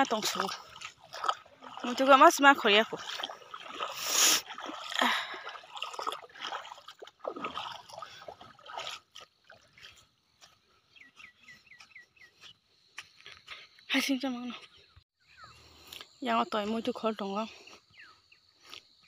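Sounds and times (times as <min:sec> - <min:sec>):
footsteps splashing through water: 0:00.0 - 0:13.6.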